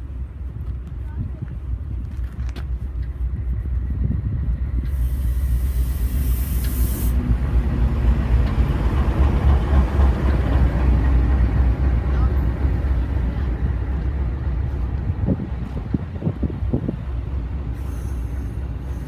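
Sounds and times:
diesel train passing: 0.0s - 19.0s
brief hiss: 4.8s - 7.3s.

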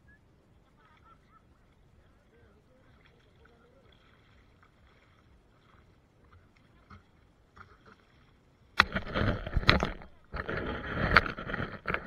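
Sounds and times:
faint distant voices: 0.0s - 8.1s
faint shore ambience: 0.0s - 12.0s.

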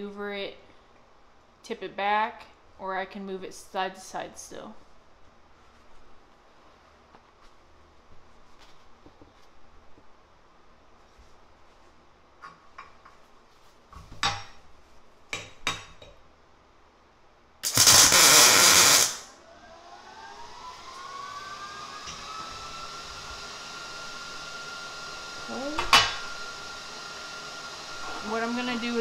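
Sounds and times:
welder arc noise: 17.6s - 19.4s, 24.1s - 26.9s, 27.5s - 29.0s
fan whine: 17.6s - 29.0s.

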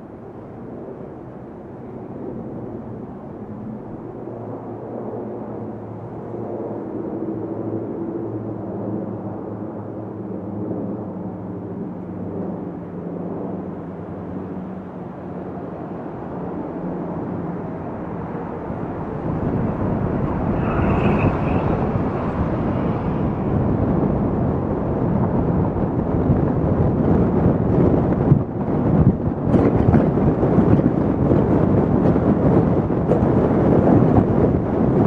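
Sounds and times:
road and wind noise: 0.0s - 35.0s
car engine hum: 18.3s - 25.2s.

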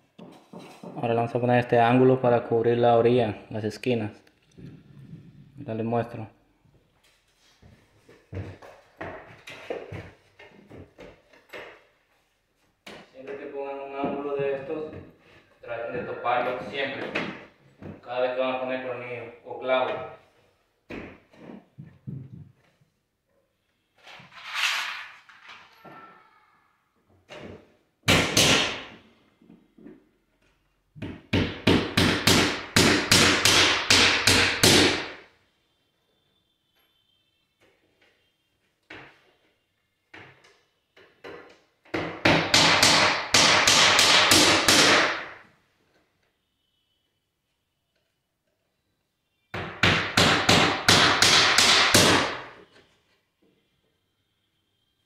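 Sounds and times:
hammer blows nailing trim: 28.0s - 29.0s, 31.3s - 35.2s, 41.9s - 45.4s, 49.5s - 52.6s.

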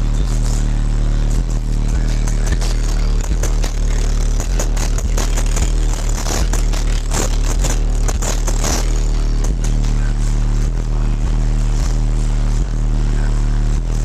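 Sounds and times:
loud deep bass line: 0.0s - 14.0s
crackling and rattling: 1.7s - 10.6s.

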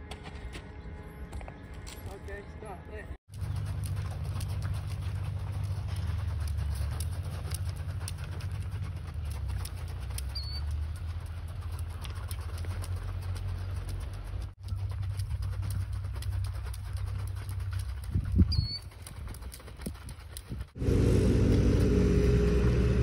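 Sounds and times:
wind buffeting microphone: 17.7s - 23.0s.

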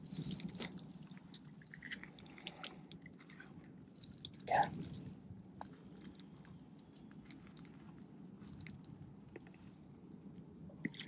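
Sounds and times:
faint clicks and crackles: 0.0s - 11.0s.

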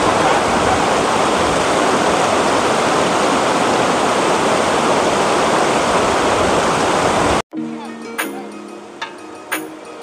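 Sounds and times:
river rushing over rocks: 0.0s - 7.4s.

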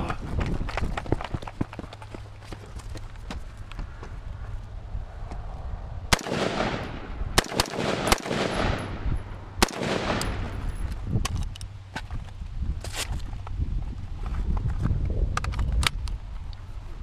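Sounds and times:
rifle shots with echo: 6.1s - 10.7s.

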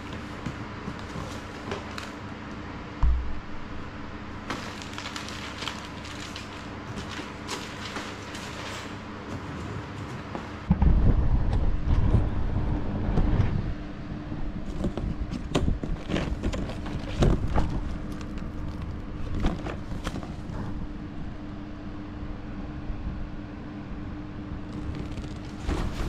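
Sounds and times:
cardboard box rummaging: 0.0s - 2.2s, 4.4s - 10.7s, 14.6s - 20.8s, 24.7s - 26.0s
plastic crinkles and scrapes: 0.0s - 2.3s, 4.4s - 10.7s, 14.6s - 20.9s, 24.7s - 26.0s.

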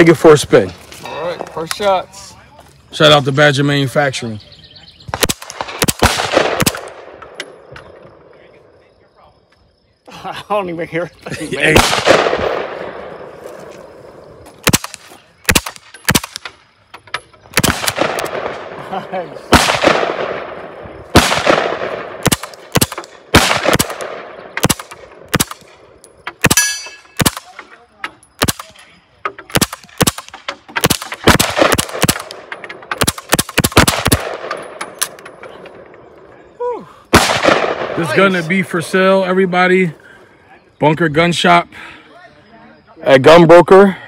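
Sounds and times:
gunshot echo: 5.1s - 7.4s, 11.6s - 13.3s, 17.6s - 18.8s, 19.5s - 25.8s, 26.4s - 27.6s, 37.1s - 38.0s
suppressed gunshots: 5.1s - 8.0s, 11.7s - 13.0s, 14.6s - 16.6s, 17.5s - 18.8s, 19.5s - 27.6s, 29.4s - 35.4s, 37.1s - 38.0s.

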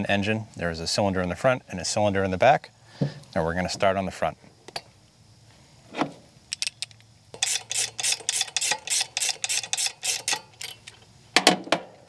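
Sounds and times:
ratchet wrench clicking: 6.5s - 11.0s.

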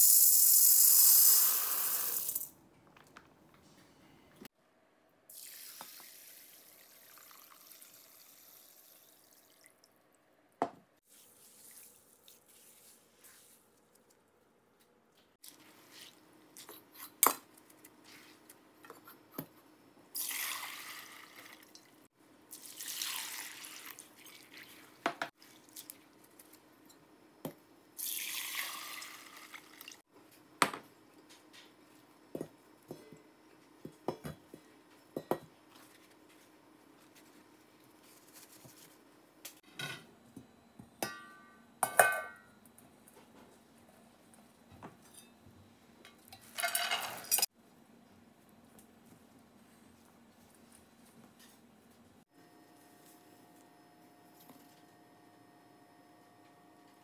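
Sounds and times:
water pouring through strainer: 22.6s - 25.9s.

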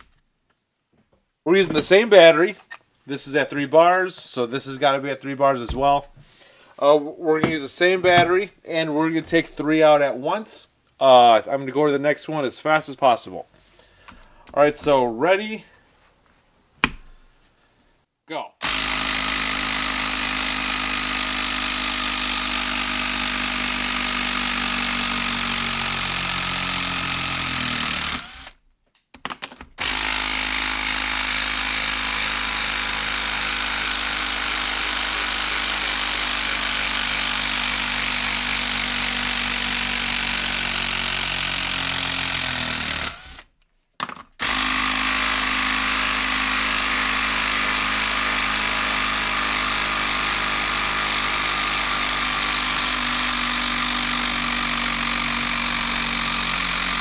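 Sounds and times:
impact driver hammering: 5.7s - 6.3s, 7.4s - 8.4s, 16.8s - 17.2s, 18.6s - 28.6s, 29.2s - 43.4s, 44.0s - 57.0s.

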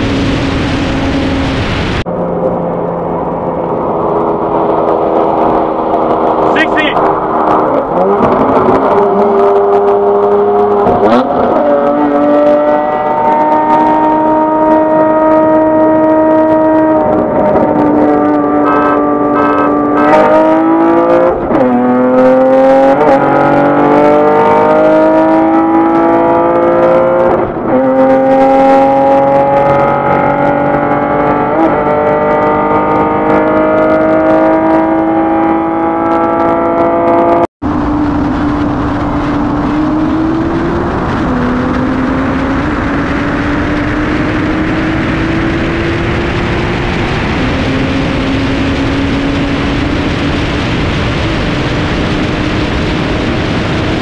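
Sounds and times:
car engine at full throttle: 0.0s - 54.0s
car engine droning at speed: 0.0s - 54.0s
wind rushing: 37.6s - 54.0s.

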